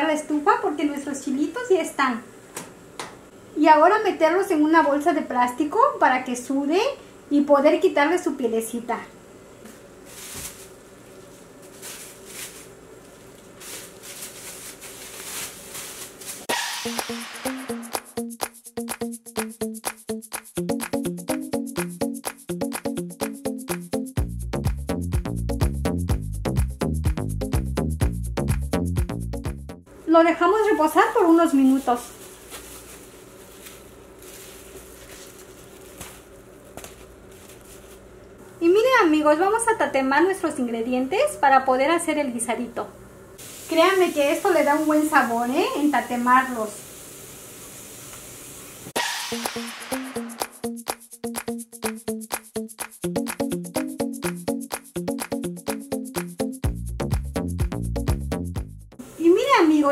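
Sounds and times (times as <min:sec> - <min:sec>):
plastic bag crinkling: 0:10.0 - 0:16.5, 0:31.0 - 0:38.2.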